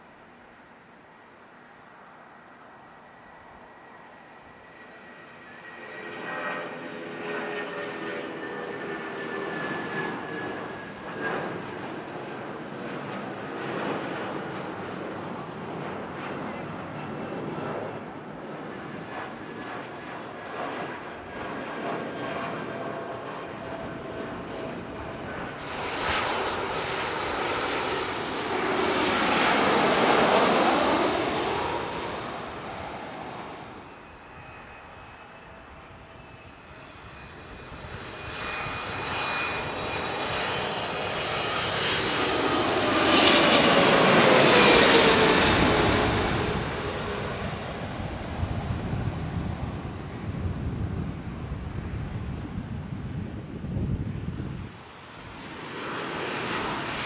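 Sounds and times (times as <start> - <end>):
jet airliner passing: 0.0 - 57.0.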